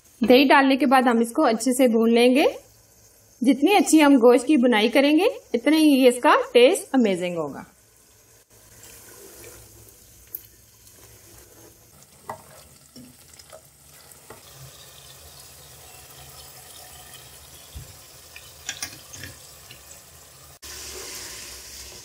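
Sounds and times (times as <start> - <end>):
meat sizzling in oil: 7.7 - 22.0
spatula knocking and scraping pot: 11.0 - 13.6.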